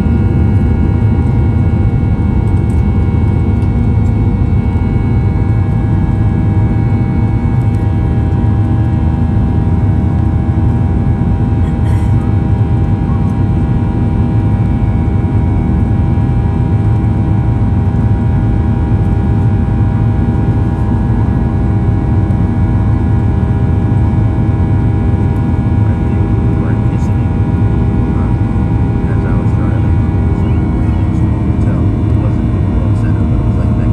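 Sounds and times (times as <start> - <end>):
jet engine whining tones: 0.0 - 33.9
jet engines rumbling in cabin: 0.0 - 33.9.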